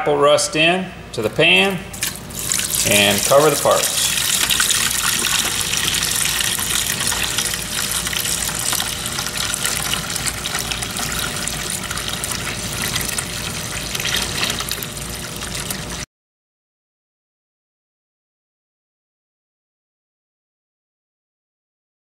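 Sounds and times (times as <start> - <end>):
liquid pouring into metal pan: 1.9 - 16.0
liquid splashing: 1.9 - 16.0.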